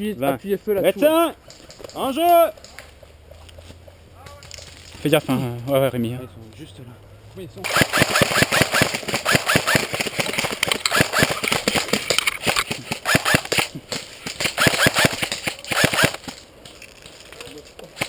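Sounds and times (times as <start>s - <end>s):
airsoft guns firing: 7.6s - 16.4s.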